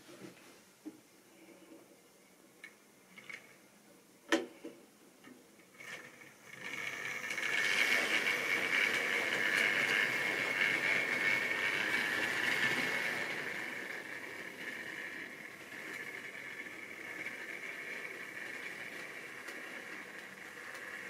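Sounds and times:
model train wheels rattling: 5.2 - 21.0
small electric motor whining: 5.8 - 21.0.

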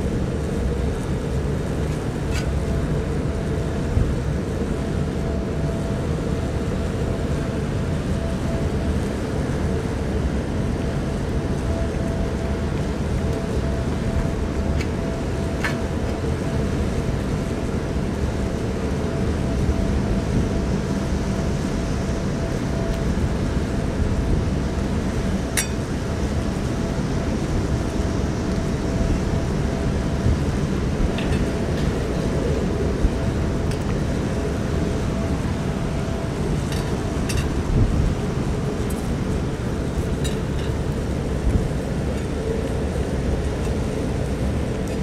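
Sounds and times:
faint steady hum: 0.0 - 45.0
strong wind on microphone: 0.0 - 45.0.

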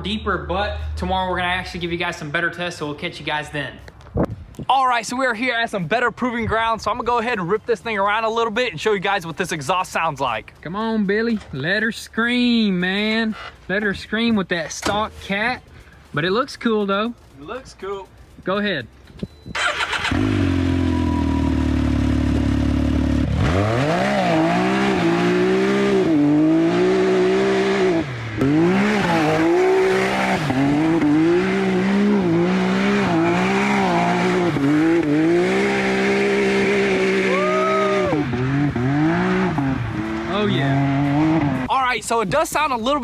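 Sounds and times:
engine revving: 19.5 - 41.7.

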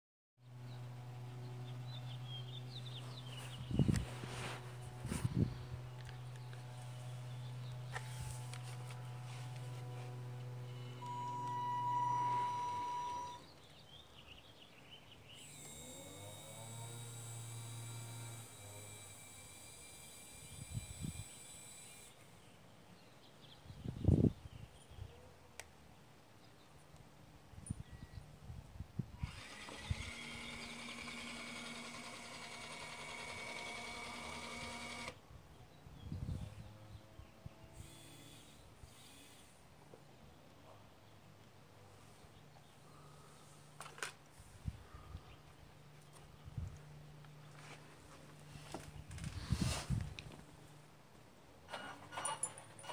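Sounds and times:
quiet motor hum: 0.4 - 13.8, 15.1 - 23.0, 29.2 - 35.2, 36.6 - 52.9
electric motor whining: 0.7 - 13.4, 15.3 - 22.5, 29.2 - 35.2, 37.6 - 39.6.

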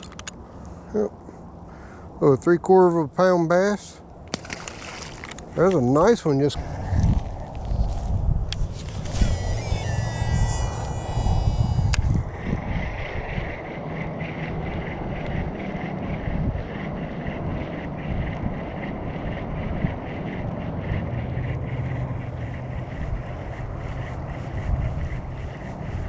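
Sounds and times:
fishing reel whirring: 4.4 - 26.0
wind buffeting microphone: 4.8 - 26.0.

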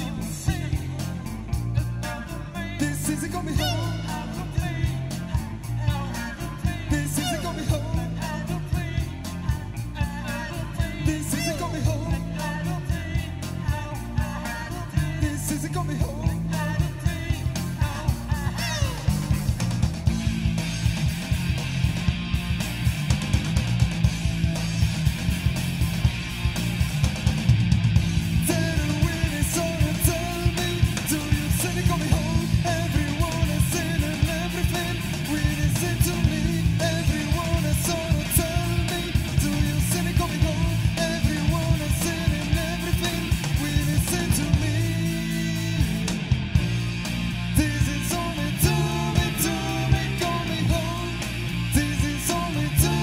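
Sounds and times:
person singing: 0.0 - 19.5, 28.3 - 46.2, 47.5 - 53.0
guitar: 0.0 - 53.0
steady drum beat: 0.0 - 53.0.

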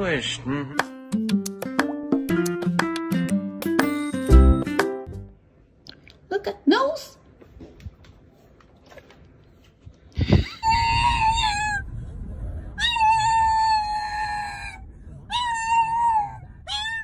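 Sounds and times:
dog whining: 10.3 - 11.9, 12.8 - 17.0.

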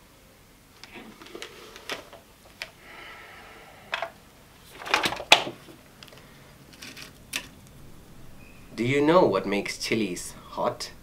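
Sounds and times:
gas mask handling clicks and knocks: 0.8 - 2.8, 3.9 - 7.6.

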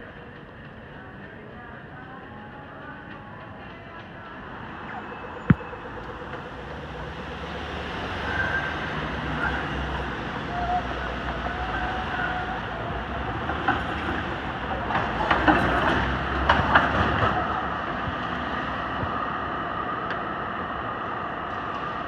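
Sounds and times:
tram wheels clacking on track: 0.0 - 22.0
car traffic passing: 4.4 - 20.8.

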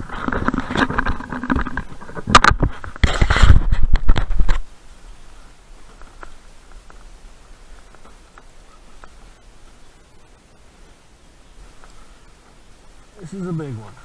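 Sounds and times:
camera handling rubbing and knocking: 0.0 - 4.7
faint background noise: 0.0 - 14.0.

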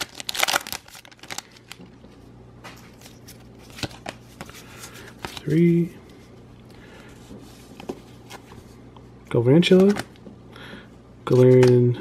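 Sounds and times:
foil wrapper crinkling: 0.0 - 1.9.

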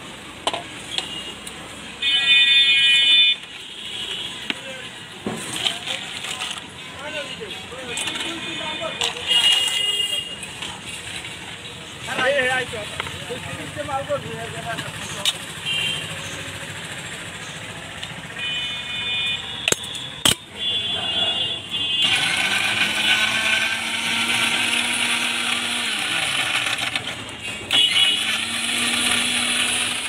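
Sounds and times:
mixer grinder motor: 21.8 - 30.0.

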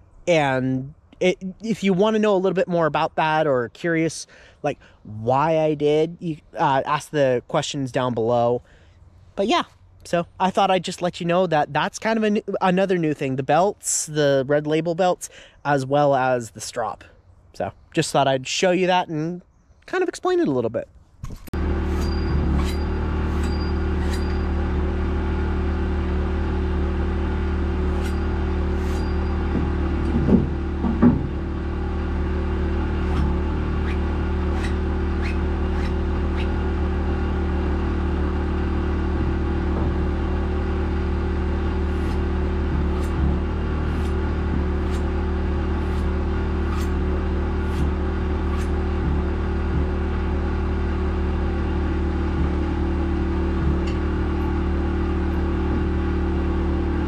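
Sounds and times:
motor humming: 21.5 - 57.0
loud knocks: 29.4 - 31.5, 39.2 - 40.2.

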